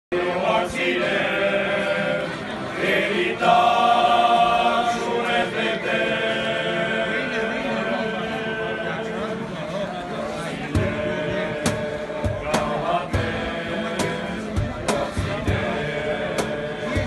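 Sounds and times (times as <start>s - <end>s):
men singing in chorus: 10.6s - 17.0s.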